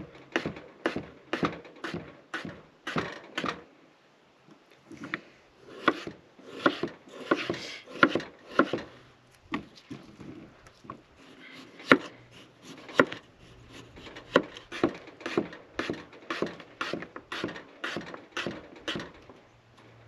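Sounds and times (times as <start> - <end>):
knife chopping on wooden board: 5.7 - 8.8, 11.8 - 13.2.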